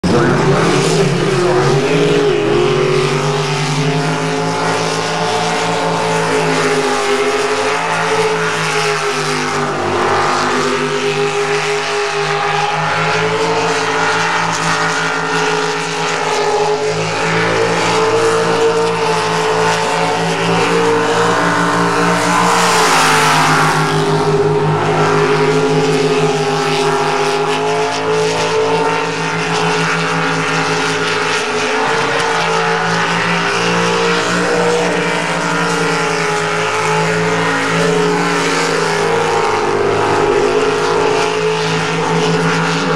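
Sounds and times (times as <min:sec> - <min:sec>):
boat engine at high revs: 0:00.0 - 0:42.9.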